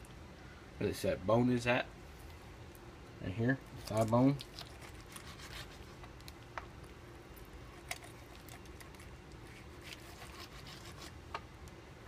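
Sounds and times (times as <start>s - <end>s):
low room hum: 0.0s - 12.0s
knife cutting raw chicken: 9.5s - 11.2s.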